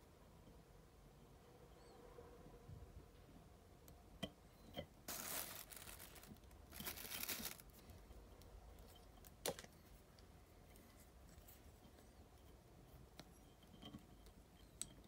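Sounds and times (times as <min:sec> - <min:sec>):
soft rustling of thread: 0:05.0 - 0:15.0.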